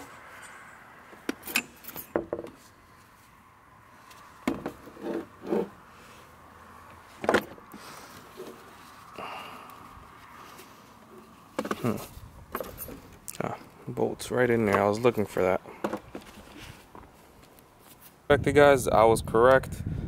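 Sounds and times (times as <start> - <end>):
metal tools clinking on metal: 0.0 - 2.2, 12.5 - 13.1.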